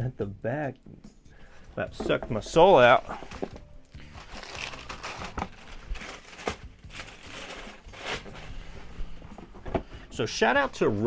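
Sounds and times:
tissue paper crinkling: 0:02.8 - 0:09.2.

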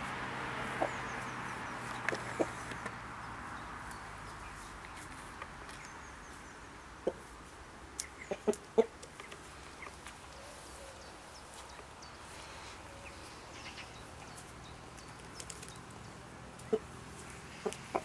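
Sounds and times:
rooster clucking: 0:02.1 - 0:02.7, 0:08.2 - 0:09.0, 0:16.7 - 0:16.9, 0:17.5 - 0:18.0.

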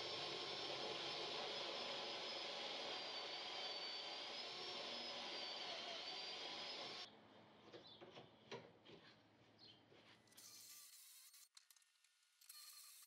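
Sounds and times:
cordless drill whining: 0:00.0 - 0:07.1.

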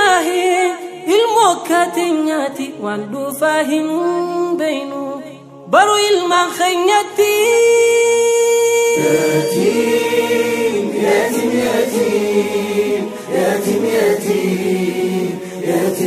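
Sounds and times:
layered voices singing harmony: 0:08.9 - 0:16.0
long held sung note: 0:09.0 - 0:11.5.

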